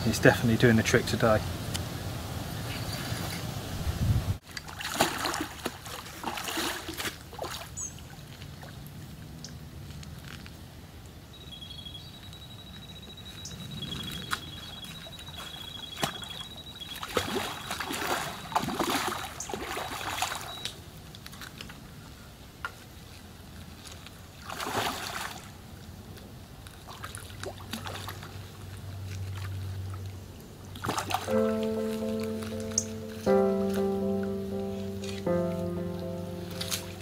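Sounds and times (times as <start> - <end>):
fish splashing at surface: 4.5 - 7.8, 17.0 - 20.6.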